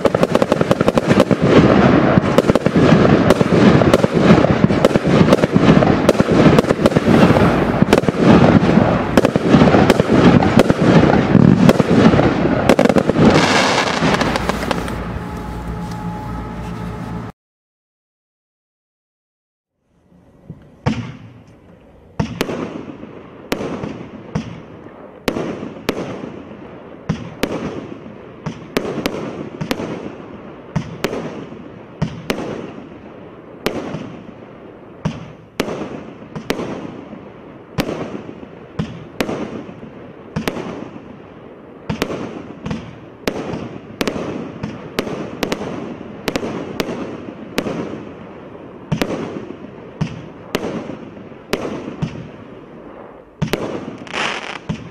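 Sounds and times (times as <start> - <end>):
firework cake firing sharp reports: 0.0 - 15.3, 41.8 - 54.9.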